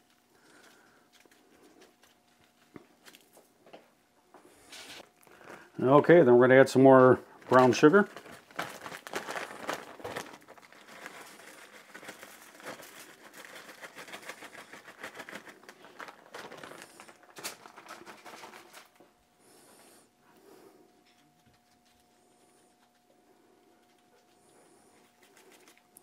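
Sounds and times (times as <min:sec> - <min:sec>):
sugar sprinkling on foil: 0:00.0 - 0:03.5, 0:04.6 - 0:19.0
plastic bag crinkling: 0:04.8 - 0:19.0.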